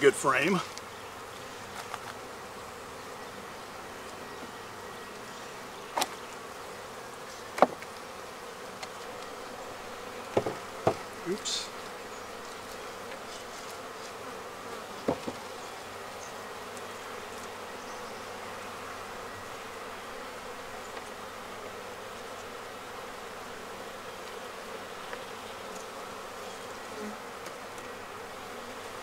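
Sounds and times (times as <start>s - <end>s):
honeybees buzzing: 0.0s - 29.0s
sharp knock: 10.4s - 11.0s.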